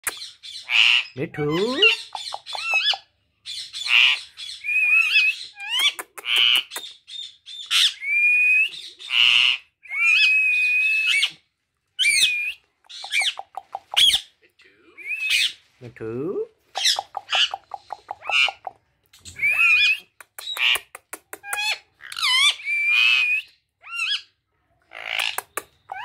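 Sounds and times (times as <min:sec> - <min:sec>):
parakeet chattering: 0:00.0 - 0:07.9, 0:12.9 - 0:14.3, 0:16.7 - 0:18.8, 0:19.4 - 0:24.3
parakeets squawking: 0:00.1 - 0:08.0, 0:09.0 - 0:11.3, 0:12.0 - 0:14.3, 0:16.7 - 0:20.9, 0:21.5 - 0:26.0
parakeet whistles: 0:12.0 - 0:13.4, 0:19.4 - 0:20.0.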